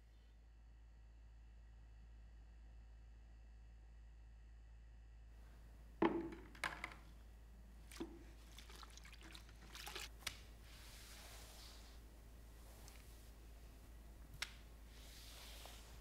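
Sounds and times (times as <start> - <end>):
mop knocking against bucket: 6.0 - 7.0
water sloshing and dripping: 7.7 - 10.6
soft wet swish: 7.9 - 13.8, 14.5 - 16.0.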